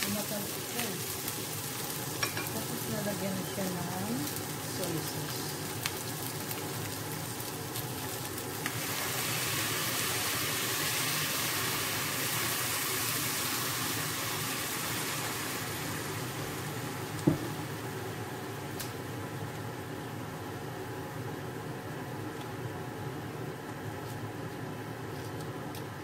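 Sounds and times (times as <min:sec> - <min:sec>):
chicken feet sizzling in pot: 0:00.0 - 0:18.5.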